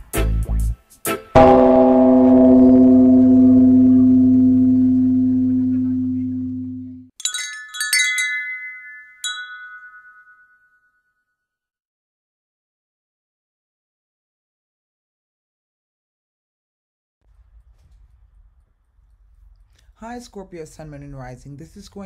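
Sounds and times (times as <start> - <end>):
deep bell tone ringing: 1.4 - 10.9
wind chime high strikes: 7.2 - 11.0.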